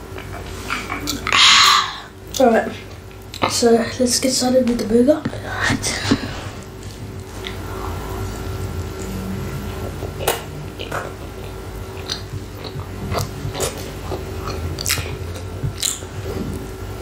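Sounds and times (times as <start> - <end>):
person chewing and biting: 6.6 - 16.8.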